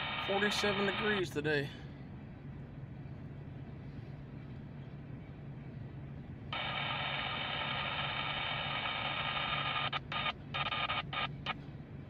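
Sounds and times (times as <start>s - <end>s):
radio transmission tones and hiss: 0.0s - 1.4s, 6.5s - 11.6s.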